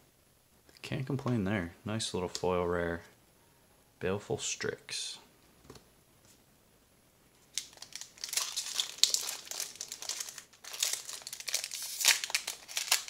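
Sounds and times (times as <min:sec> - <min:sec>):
crinkly packaging rustling: 0:07.4 - 0:13.0.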